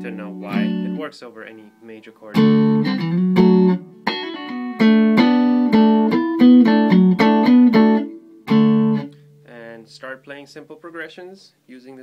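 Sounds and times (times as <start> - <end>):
electric guitar strumming chords: 0.0 - 9.5.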